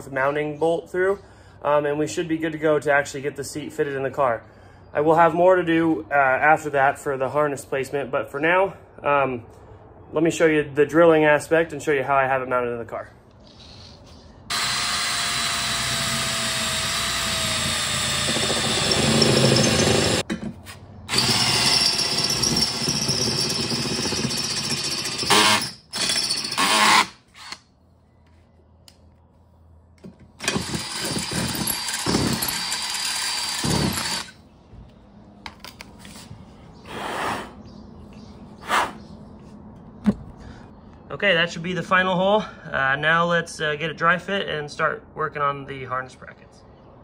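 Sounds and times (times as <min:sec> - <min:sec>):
cordless drill boring metal: 0:14.5 - 0:20.2, 0:21.1 - 0:27.6, 0:30.4 - 0:34.4.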